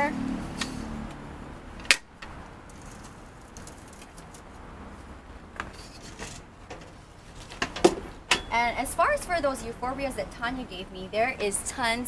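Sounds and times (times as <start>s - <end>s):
soil rustling: 2.2s - 5.1s.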